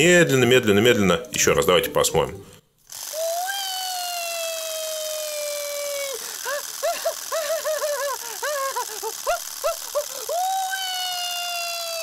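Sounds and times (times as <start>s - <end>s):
clockwork toy motor whining: 2.9s - 12.0s
chirping pulses: 3.0s - 12.0s.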